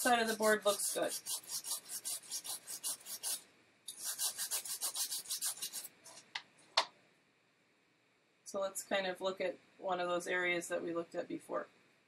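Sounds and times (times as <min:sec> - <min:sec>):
brush scrubbing circuit board: 0:00.0 - 0:06.2.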